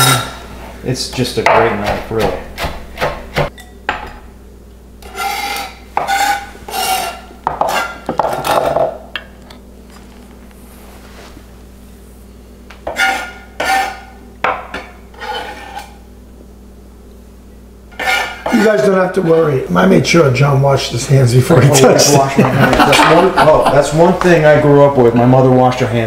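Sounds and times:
knife scraping on cutting board: 0:05.0 - 0:08.6, 0:12.8 - 0:14.2, 0:15.1 - 0:16.0, 0:17.9 - 0:19.3.

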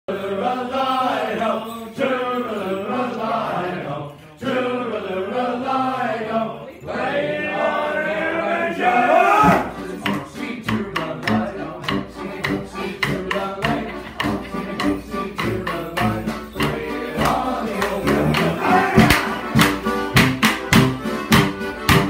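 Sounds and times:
men singing la la: 0:00.1 - 0:19.6
band music: 0:09.4 - 0:22.0
wooden sticks clacking: 0:10.0 - 0:22.0.

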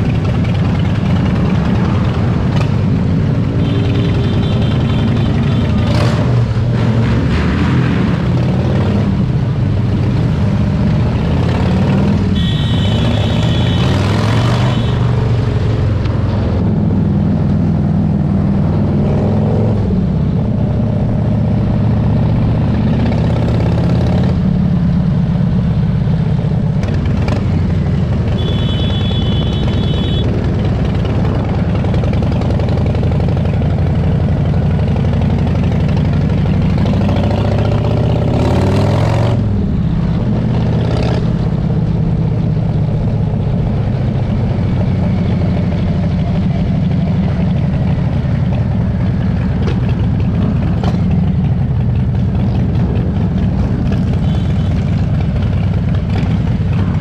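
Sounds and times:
motorcycle engines running: 0:00.0 - 0:57.0.

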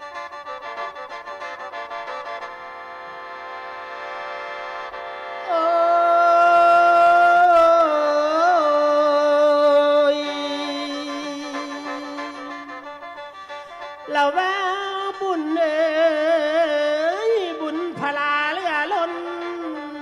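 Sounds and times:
person singing long note: 0:05.4 - 0:13.2.

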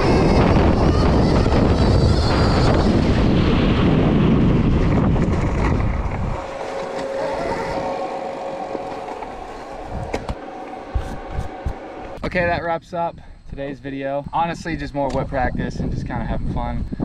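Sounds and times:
wind and tyre rush: 0:00.0 - 0:12.1
electric motor whine: 0:00.0 - 0:12.6.

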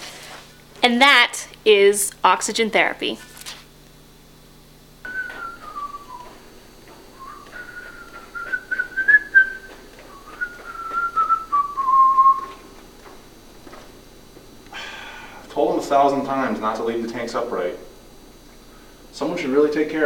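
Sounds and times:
person whistling a tune: 0:05.1 - 0:06.4, 0:07.2 - 0:12.6
footsteps on hard floor: 0:05.1 - 0:14.5.

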